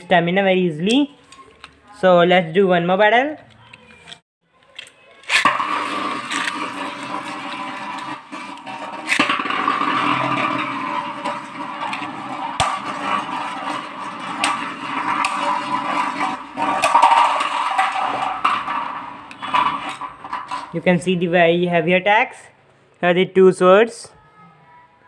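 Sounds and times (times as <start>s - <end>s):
spinning tops clacking together: 5.2s - 20.8s
spinning tops whirring and scraping: 5.2s - 21.4s.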